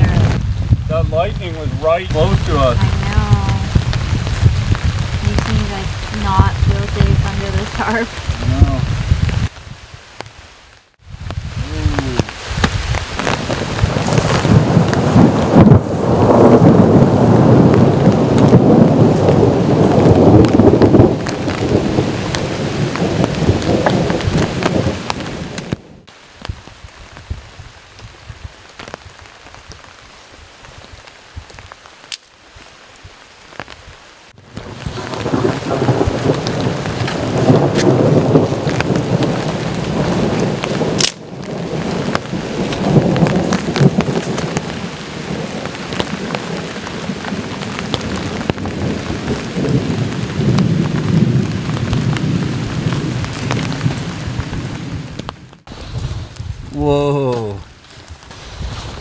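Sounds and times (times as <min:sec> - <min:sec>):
rolling thunder: 0:00.0 - 0:09.9, 0:11.0 - 0:29.2, 0:34.4 - 0:56.8
steady rain: 0:00.0 - 0:59.0.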